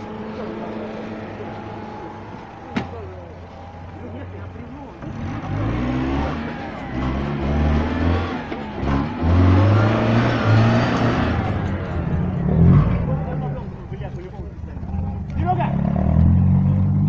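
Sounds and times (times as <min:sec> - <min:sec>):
engine revving: 0:00.0 - 0:17.0.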